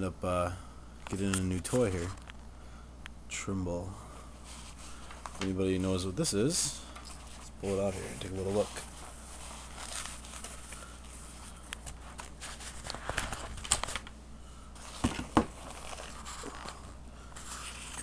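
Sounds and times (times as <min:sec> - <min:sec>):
fabric case rustling: 0:07.2 - 0:11.2.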